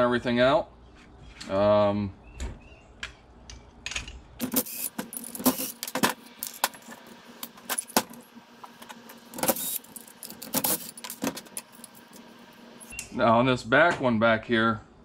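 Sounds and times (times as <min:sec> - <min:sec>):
parts dropped into steel tray: 0:03.8 - 0:08.2.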